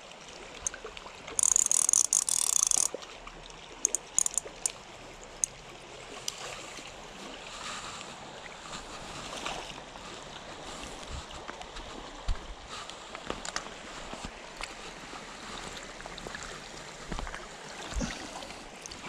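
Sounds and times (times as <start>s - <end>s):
creek water running: 0.0s - 19.0s
fishing reel clicks: 1.4s - 3.0s, 3.8s - 4.8s
fishing reel ratchet buzzing: 1.4s - 3.0s, 3.8s - 4.8s.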